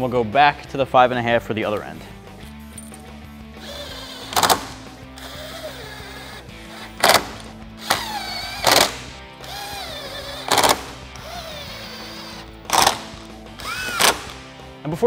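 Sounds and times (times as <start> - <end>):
background music: 0.0 - 15.0
impact gun bursts: 3.7 - 6.1, 6.8 - 14.5.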